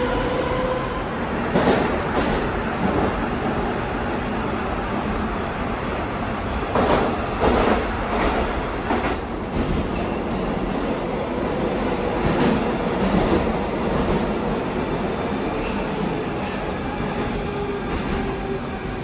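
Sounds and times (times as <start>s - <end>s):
metro train rumbling: 0.0s - 19.0s.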